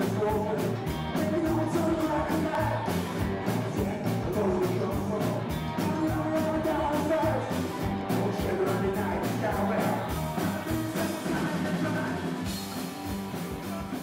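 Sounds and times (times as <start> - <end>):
drum kit beat: 0.0 - 14.0
electric guitar: 0.0 - 14.0
male lead singer: 0.0 - 14.0
upright double bass: 0.0 - 14.0.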